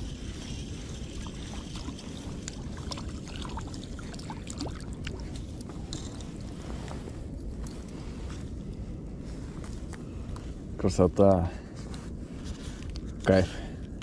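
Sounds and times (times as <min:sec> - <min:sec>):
wind buffeting microphone: 0:00.0 - 0:14.0
water dripping and ticking: 0:00.8 - 0:05.7.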